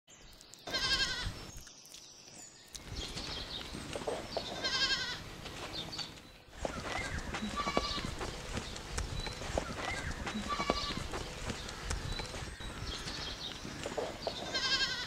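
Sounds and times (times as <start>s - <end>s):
faint farmyard sounds: 0.3s - 15.0s
goats bleating: 4.4s - 5.2s, 7.2s - 8.2s, 10.0s - 11.2s, 14.4s - 15.0s.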